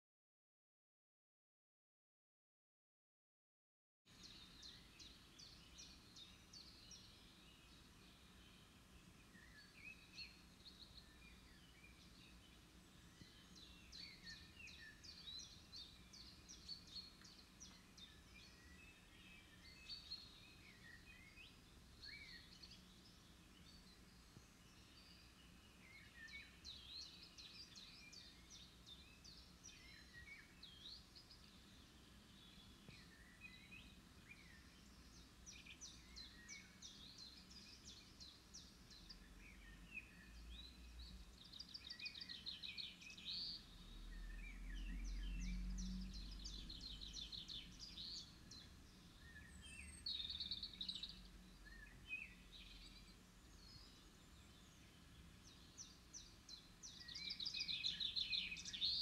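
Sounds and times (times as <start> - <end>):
songbirds chirping and trilling: 4.1 - 59.0
faint low rumble: 43.6 - 49.4.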